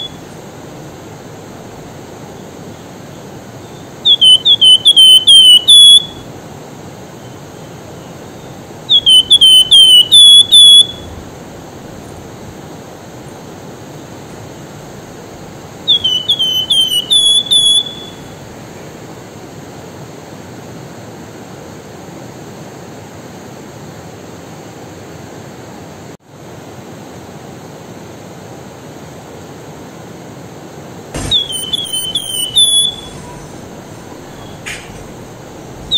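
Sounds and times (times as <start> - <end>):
bird whistled song: 0.0 - 0.4, 3.6 - 6.3, 8.4 - 12.2, 15.8 - 18.8, 31.2 - 35.9
river rushing: 31.2 - 35.9.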